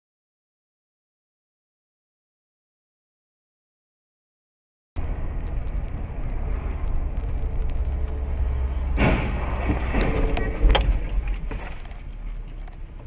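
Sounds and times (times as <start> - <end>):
car road and engine rumble: 5.0 - 13.0
debris bang: 8.4 - 11.8
loud car collision: 8.7 - 11.8.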